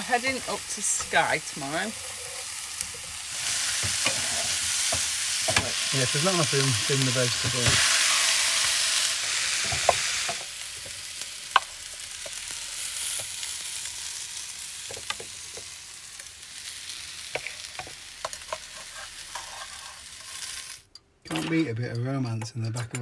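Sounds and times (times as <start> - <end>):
food sizzling in a frying pan: 0.0 - 20.9.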